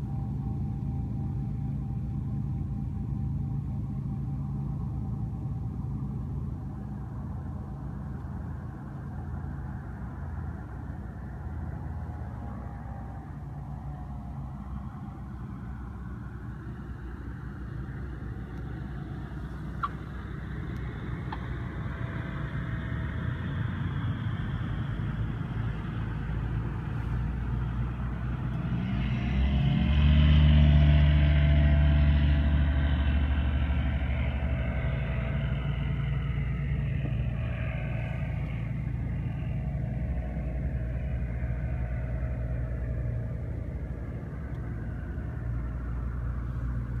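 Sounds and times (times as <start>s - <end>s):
light aircraft engine: 0.0s - 47.0s.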